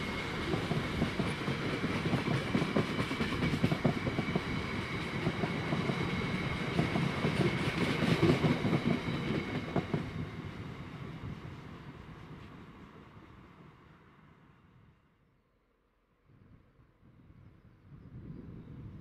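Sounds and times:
train wheels clattering over rail joints: 0.4 - 10.2.

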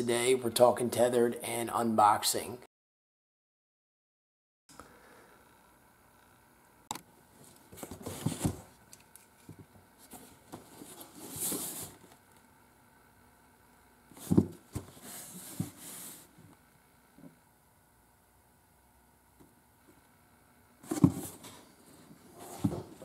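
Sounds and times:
cardboard box scraping and rustling: 10.2 - 12.0.

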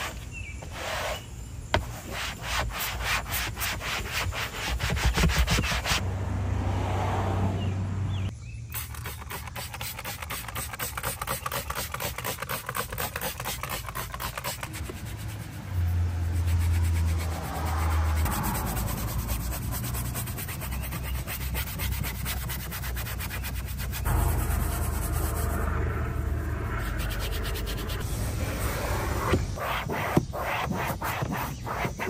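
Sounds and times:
rapid scrubbing on a surface: 1.8 - 6.0, 8.8 - 25.0, 29.2 - 32.0
low steady hum: 22.0 - 29.8.

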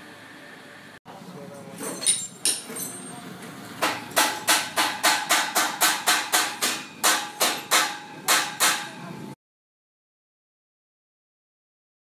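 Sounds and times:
hammer striking metal: 1.9 - 3.1, 3.8 - 9.1.

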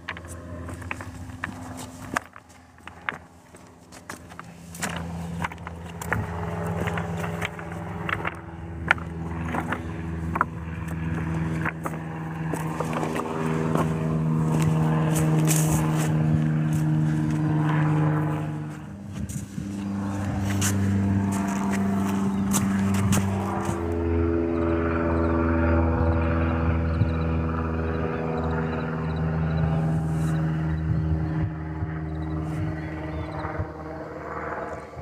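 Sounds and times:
footsteps crunching on pebbles: 0.0 - 24.0
motor droning: 0.0 - 35.0.

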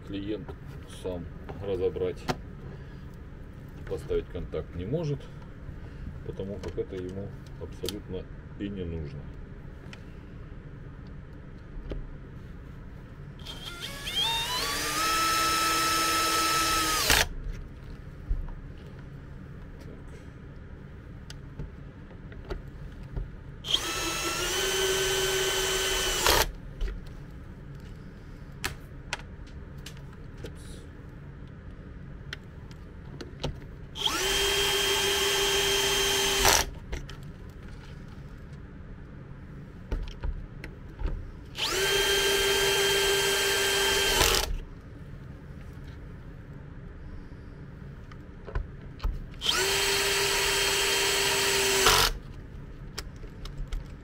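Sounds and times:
cordless drill whining: 13.4 - 17.3, 23.7 - 26.5, 34.0 - 36.7, 41.6 - 44.6, 49.4 - 52.2.

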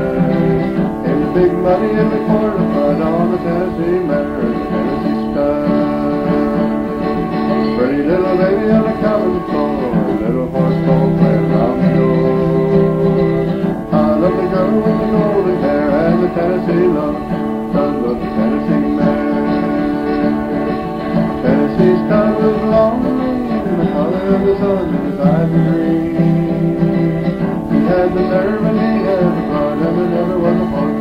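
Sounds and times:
country music with guitar: 0.0 - 31.0.

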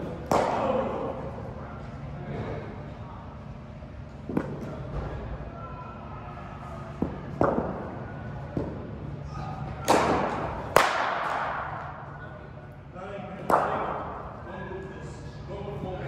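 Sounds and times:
cricket ball hits echoing: 0.2 - 1.1, 9.8 - 12.0.

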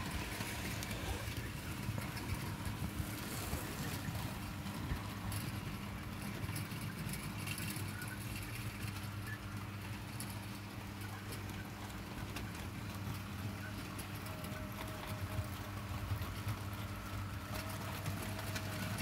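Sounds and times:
model train electric hum: 0.0 - 19.0
wheels clicking over rail joints: 0.0 - 19.0.

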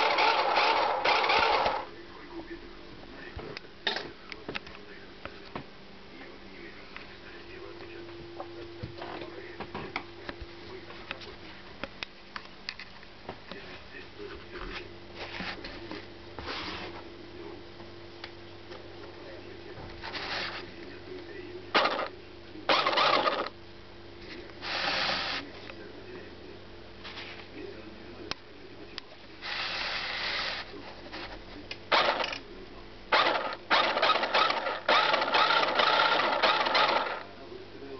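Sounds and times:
toy car motor whirring: 0.0 - 1.9, 21.8 - 22.1, 22.7 - 23.5, 24.7 - 25.4, 29.5 - 30.7, 31.9 - 32.4, 33.1 - 37.2
steady low hum: 0.0 - 37.9.

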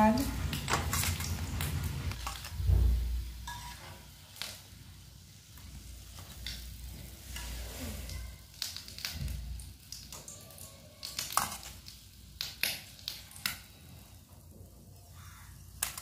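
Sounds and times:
oil frying sizzle: 0.0 - 16.0
metal spoon clinking and scraping: 3.4 - 4.1.

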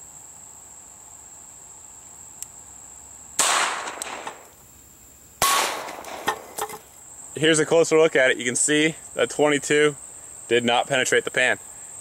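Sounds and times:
pistol shots: 3.4 - 4.5, 5.4 - 6.6.

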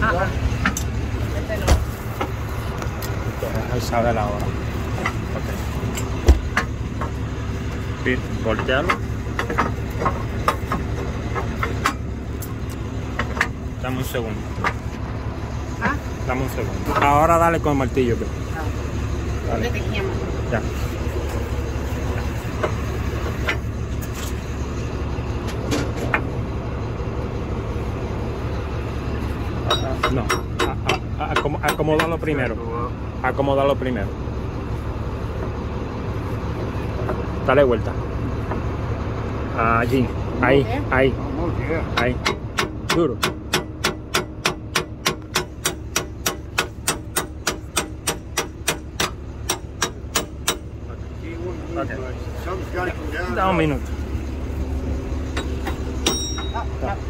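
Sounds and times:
truck engine idling: 0.0 - 57.0
sharp metal knocks: 29.6 - 32.3, 41.9 - 50.8, 55.3 - 56.7.

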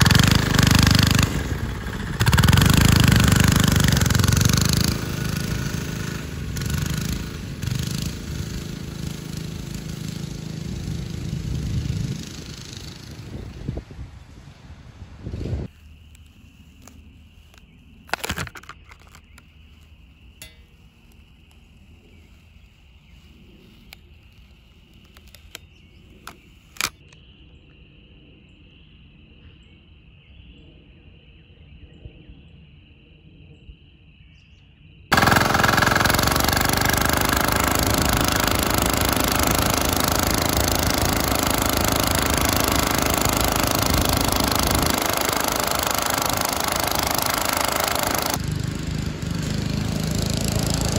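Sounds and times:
small diesel engine running: 0.0 - 23.3, 35.1 - 50.9
sharp clicks: 35.1 - 48.4.

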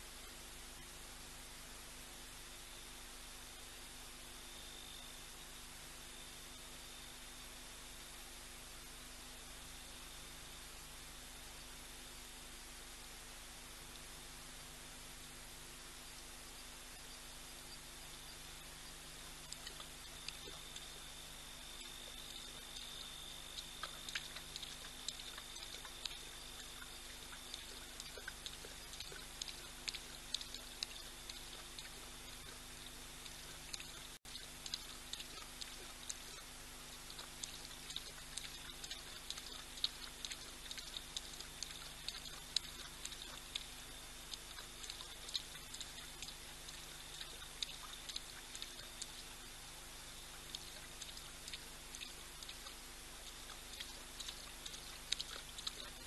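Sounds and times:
faint high tone and low hum: 0.0 - 56.0
lion lapping water: 15.9 - 56.0.

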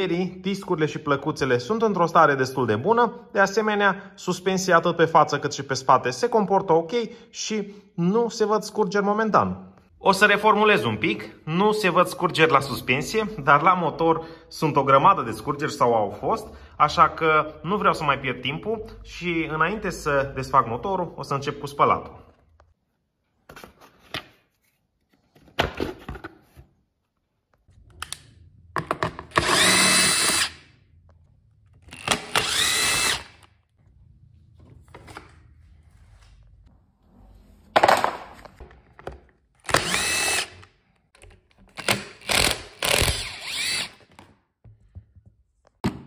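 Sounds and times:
plastic panels clicking and knocking: 28.0 - 29.5
cordless drill whining: 29.3 - 30.6, 31.8 - 33.5, 39.6 - 40.7, 41.8 - 44.2.

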